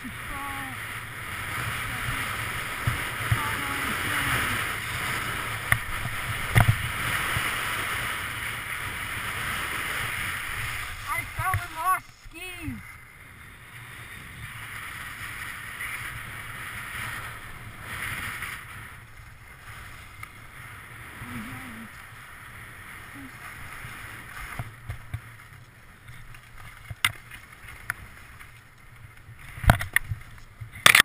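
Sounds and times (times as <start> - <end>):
skis scraping over snow: 0.0 - 31.0.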